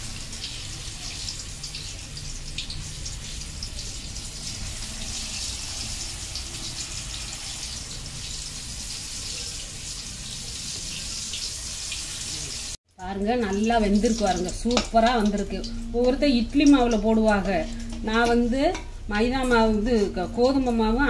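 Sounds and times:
oil sizzling and crackling: 0.0s - 21.0s.

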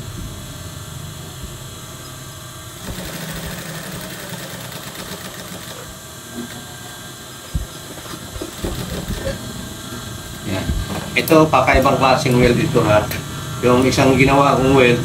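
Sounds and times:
sewing machine knock: 2.8s - 5.7s, 8.3s - 9.4s
sewing machine running: 2.8s - 9.4s.

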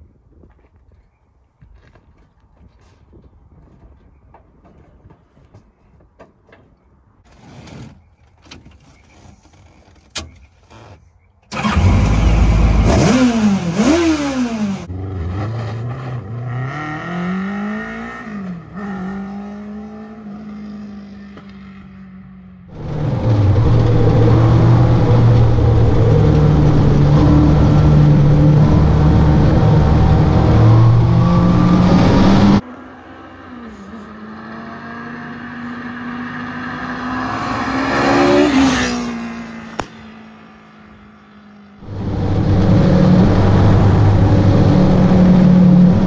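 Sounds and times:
car engine running hard: 22.7s - 33.1s, 41.8s - 46.0s.

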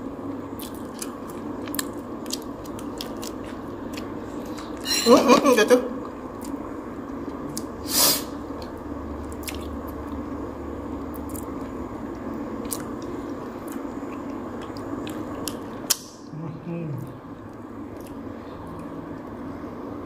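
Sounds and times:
person chewing wet food: 0.5s - 4.8s, 6.0s - 7.8s, 8.5s - 10.4s, 11.0s - 16.1s, 17.0s - 19.3s.

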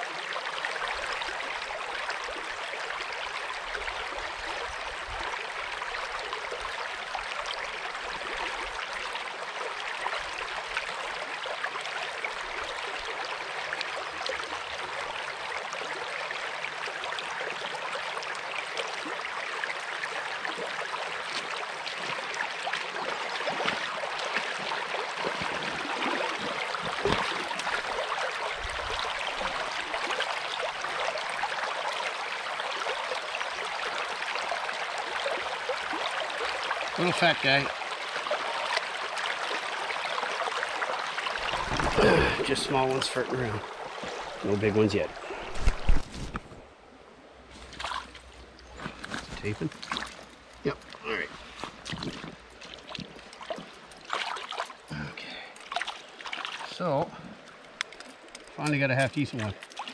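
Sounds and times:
brook running over rocks: 0.0s - 46.7s, 47.3s - 59.9s
splashes of wading: 19.9s - 46.6s, 47.5s - 59.9s.

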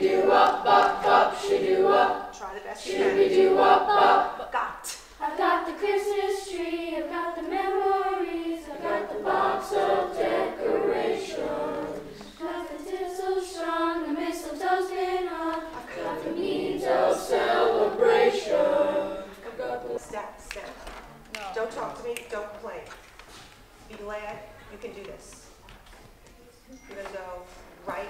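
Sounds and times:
children's choir singing: 0.0s - 4.5s, 5.2s - 20.2s.

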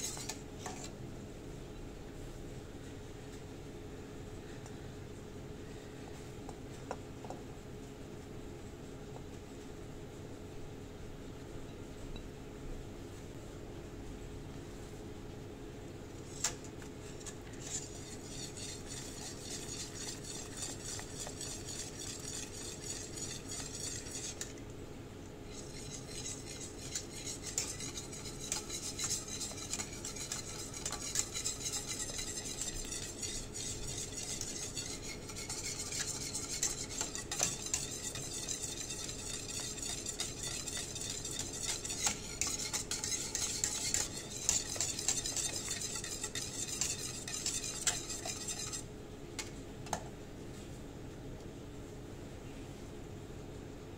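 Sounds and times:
wire whisk swishing in pot: 0.0s - 0.9s, 16.2s - 24.6s, 25.5s - 48.9s.

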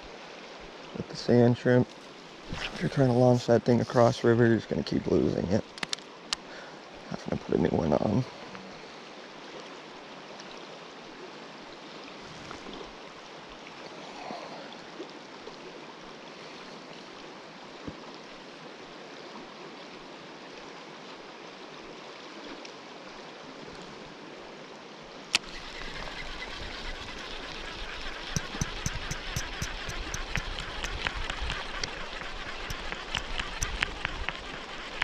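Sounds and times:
sharp click: 25.3s - 35.0s
fast-flowing river rushing: 25.4s - 35.0s.

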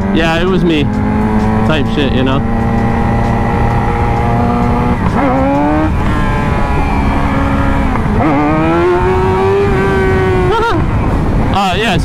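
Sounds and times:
motorcycle engine revving: 0.0s - 11.6s
wind rumble: 0.0s - 12.0s.

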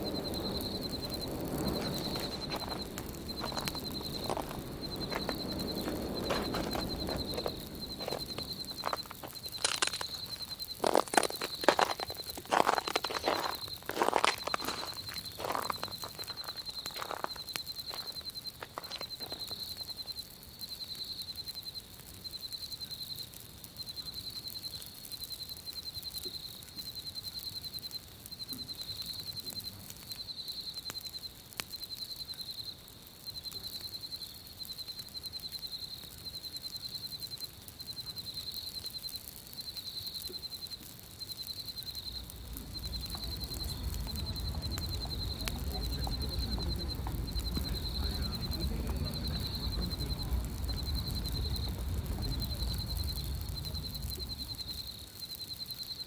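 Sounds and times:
low rush of wind: 0.0s - 11.0s, 42.1s - 54.7s
campfire crackling: 0.0s - 56.0s.

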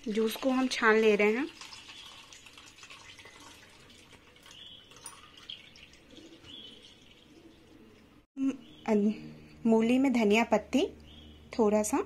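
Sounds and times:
liquid trickling and dripping: 0.0s - 8.2s.

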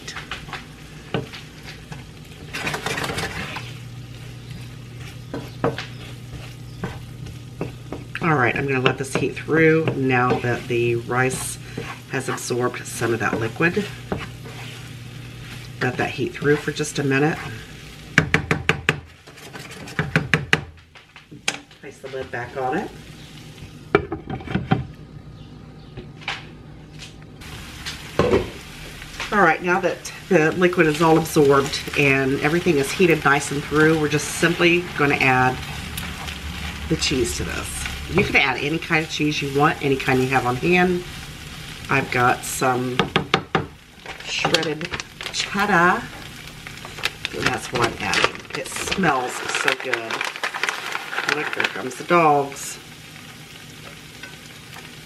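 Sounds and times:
wooden spatula scraping skillet: 0.0s - 17.7s, 19.1s - 20.2s
soft sizzle: 0.0s - 25.7s, 26.9s - 55.0s.

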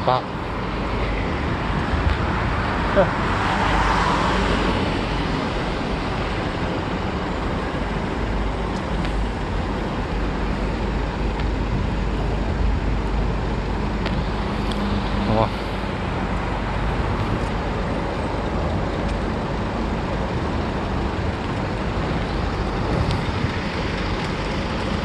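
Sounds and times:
road traffic noise: 0.0s - 25.0s
vehicle passing: 2.2s - 6.5s.

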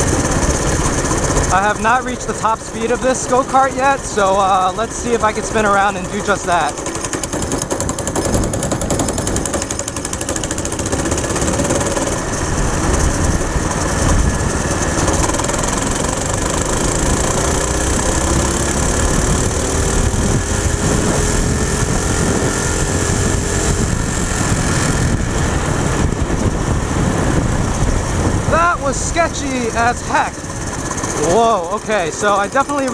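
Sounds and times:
go-kart engine at full throttle: 0.0s - 32.9s
wind noise on microphone: 7.2s - 31.4s.

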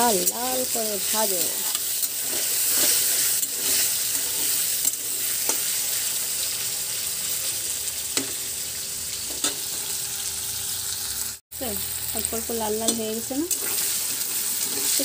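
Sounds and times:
food sizzling in hot oil: 0.0s - 15.0s
metal spatula scraping pan: 1.3s - 5.8s, 12.8s - 15.0s.

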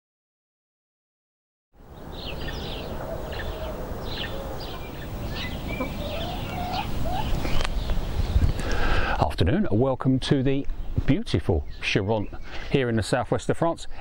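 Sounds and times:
small birds chirping: 1.8s - 9.6s, 10.3s - 13.3s
hens clucking: 2.1s - 8.8s.

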